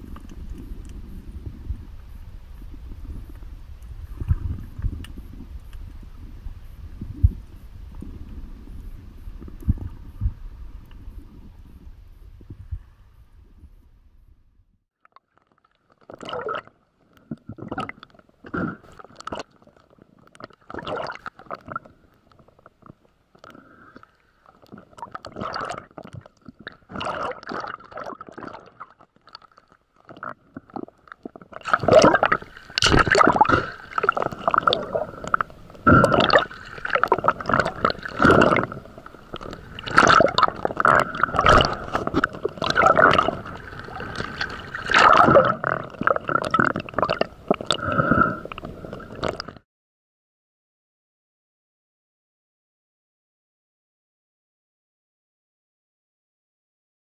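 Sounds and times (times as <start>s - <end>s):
water gurgling and sloshing: 0.0s - 49.6s.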